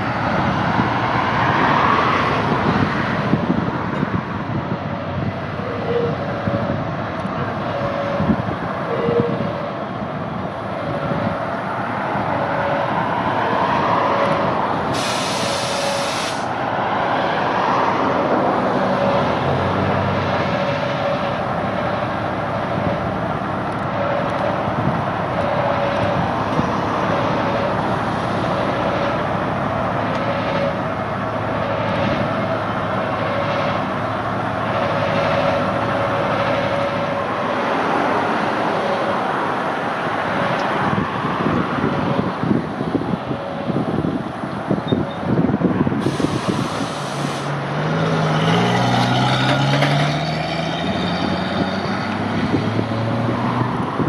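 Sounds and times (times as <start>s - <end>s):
diesel locomotive running: 0.0s - 54.0s
brief hiss: 15.0s - 16.5s, 46.1s - 47.5s.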